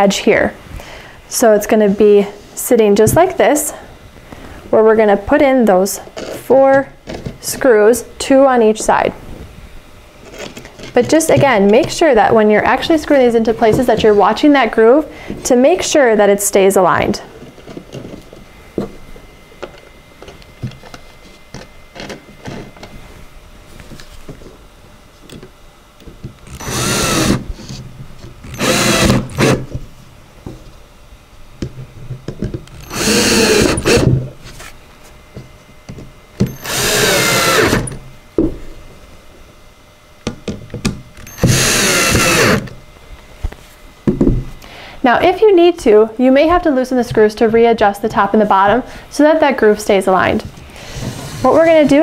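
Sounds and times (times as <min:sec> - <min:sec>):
cordless drill driving screws: 0:26.5 - 0:27.4, 0:28.4 - 0:29.7, 0:32.8 - 0:34.1, 0:36.5 - 0:38.0, 0:41.2 - 0:42.7.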